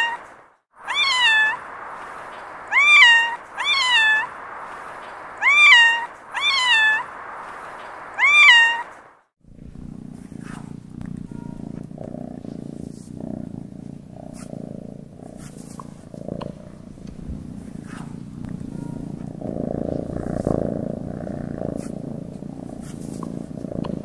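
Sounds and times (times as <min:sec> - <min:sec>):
cat meowing: 0:00.0 - 0:01.9, 0:02.6 - 0:04.4, 0:05.4 - 0:07.1, 0:08.1 - 0:09.0
steady hiss: 0:00.0 - 0:24.0
cat purring: 0:09.4 - 0:24.0.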